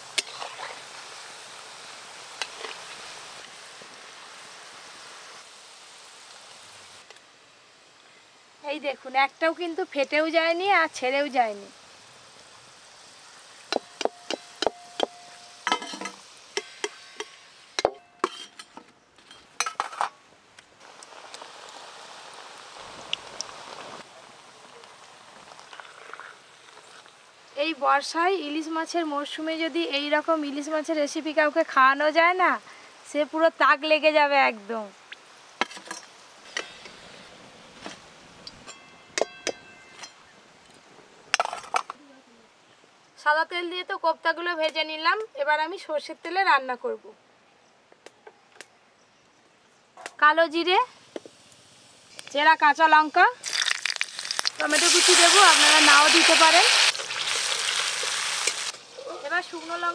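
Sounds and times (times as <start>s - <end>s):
food sizzling in hot oil: 0.0s - 20.1s, 20.8s - 39.4s, 50.6s - 59.9s
metal spoon clinking on wok: 13.7s - 18.7s.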